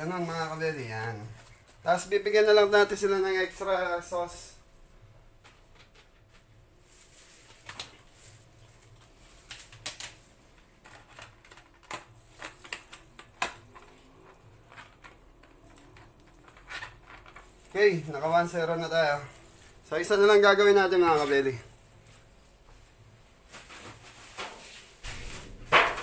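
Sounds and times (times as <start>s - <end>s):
foil tray and plastic container handled: 5.4s - 25.6s.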